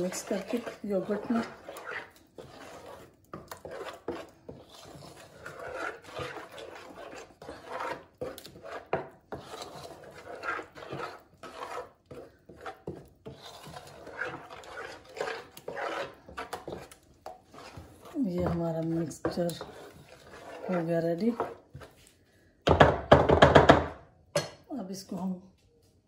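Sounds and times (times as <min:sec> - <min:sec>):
wooden spoon scraping a pan: 0:00.0 - 0:24.0.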